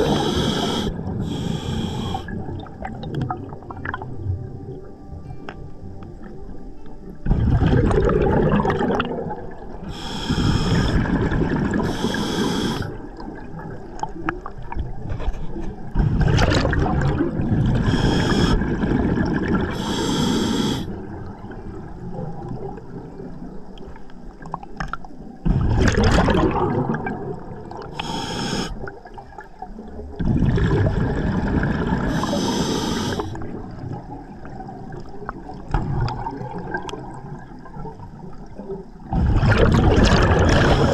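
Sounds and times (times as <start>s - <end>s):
regulator inhale hiss: 0.0s - 2.4s, 9.8s - 11.2s, 11.8s - 13.0s, 17.8s - 18.8s, 19.7s - 21.0s, 27.9s - 28.9s, 32.1s - 33.5s
gurgling exhaust bubbles: 25.5s - 27.8s, 39.1s - 40.9s.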